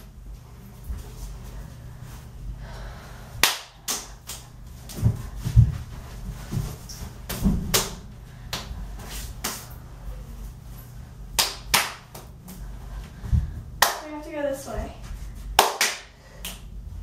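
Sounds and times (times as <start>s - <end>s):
sharp hand claps: 3.4s - 4.5s, 11.4s - 12.3s, 13.8s - 14.1s, 15.6s - 16.7s.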